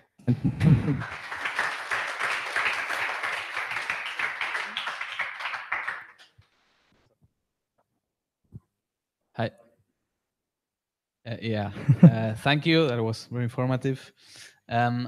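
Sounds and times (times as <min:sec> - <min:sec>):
audience applauding: 0:00.3 - 0:06.3
man talking: 0:11.3 - 0:14.1, 0:14.7 - 0:15.0.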